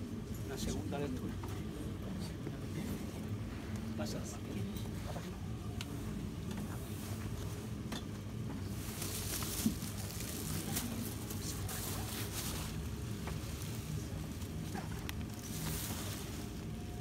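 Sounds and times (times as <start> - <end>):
crowd murmur and shuffling: 0.6 - 17.0
rustling: 8.6 - 17.0.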